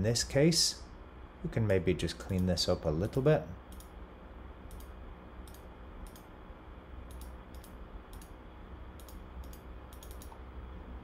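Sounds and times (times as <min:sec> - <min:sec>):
low steady hum: 0:00.0 - 0:11.0
computer mouse clicks: 0:03.1 - 0:04.0, 0:04.7 - 0:06.3, 0:07.0 - 0:08.4, 0:09.0 - 0:10.4.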